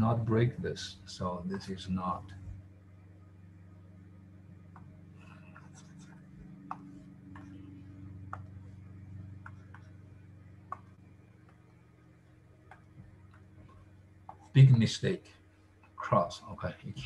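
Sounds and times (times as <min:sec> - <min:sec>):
low electrical hum: 0:00.0 - 0:17.0
soft scratching: 0:04.1 - 0:14.9.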